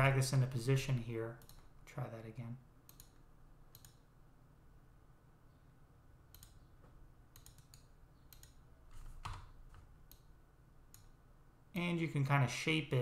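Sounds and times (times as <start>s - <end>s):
low room hum: 0.0s - 13.0s
computer mouse clicks: 1.4s - 1.7s, 2.9s - 4.1s, 6.3s - 6.7s, 7.3s - 10.3s, 10.9s - 11.1s.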